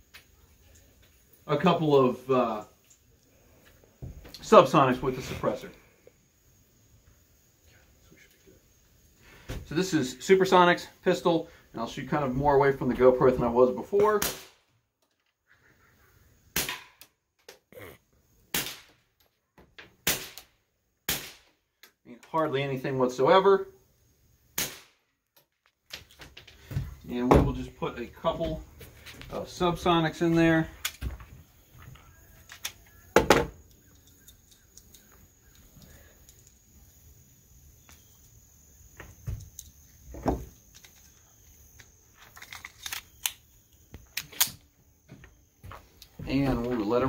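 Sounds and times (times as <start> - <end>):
suppressed pistol shots: 14.2 - 14.6, 16.5 - 17.0, 18.5 - 18.9, 20.0 - 20.5, 21.1 - 21.5, 24.6 - 25.0
cartridges clicking into magazine: 32.4 - 32.9, 33.6 - 36.6, 41.8 - 44.6.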